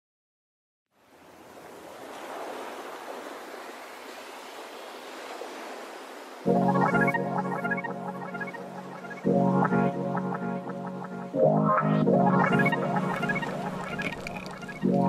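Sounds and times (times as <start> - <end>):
sea water lapping: 1.0 - 6.5, 13.0 - 15.0
music: 6.5 - 15.0.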